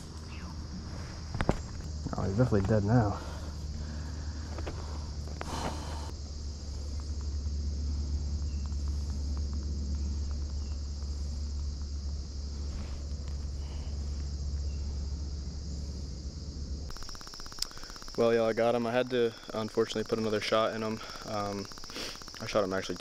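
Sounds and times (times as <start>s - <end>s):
steady low rumble: 0.0s - 16.9s
crickets trilling: 0.0s - 23.0s.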